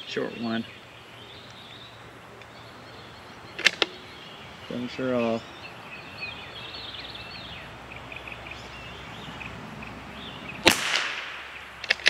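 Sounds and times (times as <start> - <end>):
small birds chirping: 0.0 - 12.0
rifle shot: 10.6 - 12.0.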